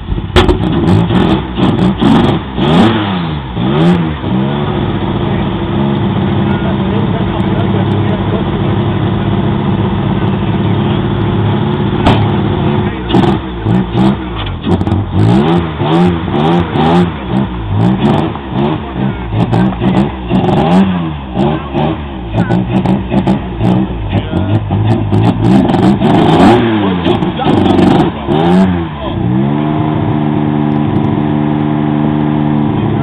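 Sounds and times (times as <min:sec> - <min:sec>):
race car engine revving: 0:00.0 - 0:33.0
sharp knock: 0:00.4 - 0:00.9, 0:12.0 - 0:12.4.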